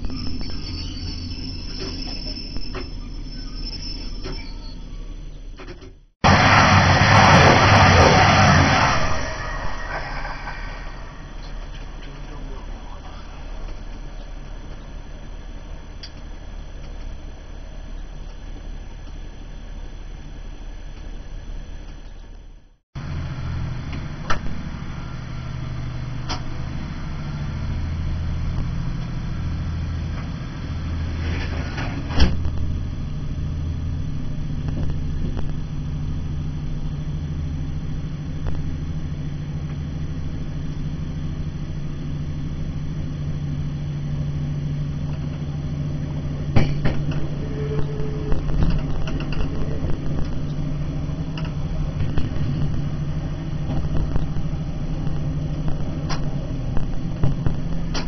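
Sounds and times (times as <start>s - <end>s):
train engine drone: 0.0s - 58.0s.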